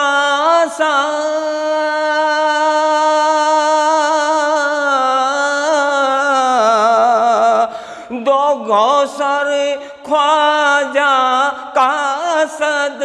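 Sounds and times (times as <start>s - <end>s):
man singing a long note: 0.0s - 13.0s.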